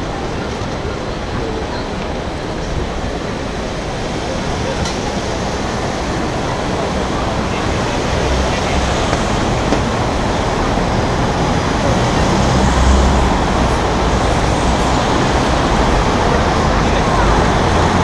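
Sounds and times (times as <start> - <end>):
cars passing: 0.0 - 18.0
rumble of engines and tyres: 0.0 - 18.0.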